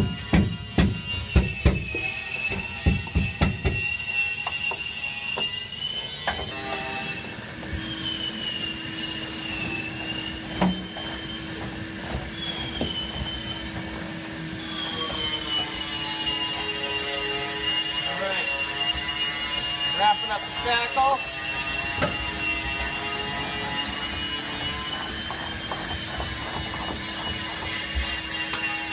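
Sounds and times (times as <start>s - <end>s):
sharp metal knocks: 0.0s - 3.9s
ratchet wrench clicking: 7.3s - 11.3s, 12.0s - 12.4s, 13.0s - 15.0s, 15.6s - 16.7s, 23.8s - 28.6s.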